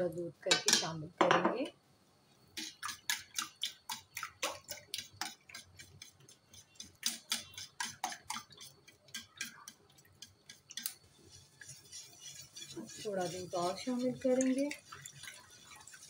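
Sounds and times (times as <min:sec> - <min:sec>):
whisk clicking against steel bowl: 0:02.6 - 0:11.0, 0:11.6 - 0:16.0.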